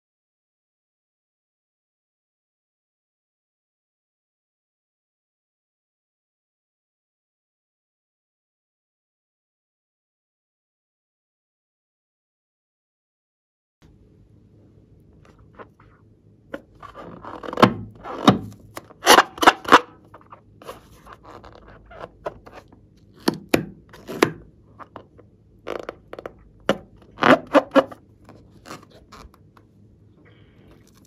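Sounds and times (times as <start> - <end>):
rubber balloon rubbing against skin: 15.4 - 29.5.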